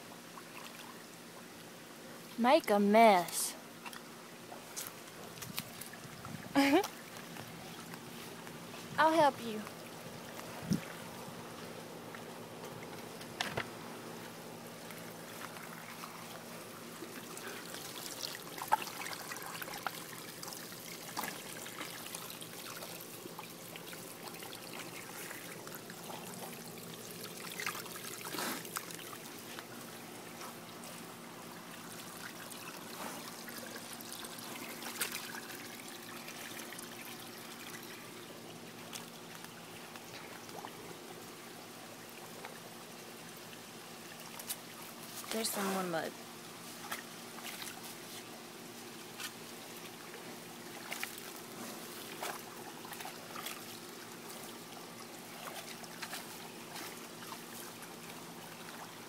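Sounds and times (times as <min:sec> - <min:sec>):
hose water splashing into puddle: 0:14.8 - 0:30.1, 0:30.8 - 0:38.1, 0:44.1 - 0:48.3, 0:49.1 - 0:59.0.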